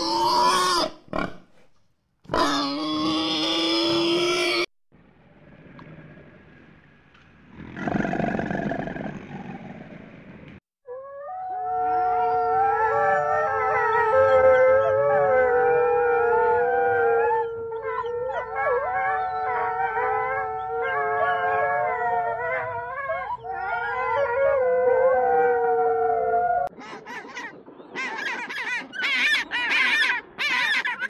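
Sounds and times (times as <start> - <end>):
wolves howling in chorus: 10.9 - 26.7.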